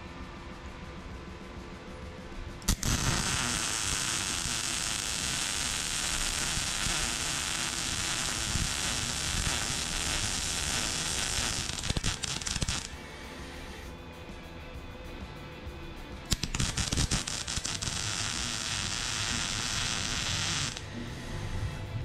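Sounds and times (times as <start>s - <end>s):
welding arc crackling hiss: 2.6s - 13.0s, 16.3s - 20.9s.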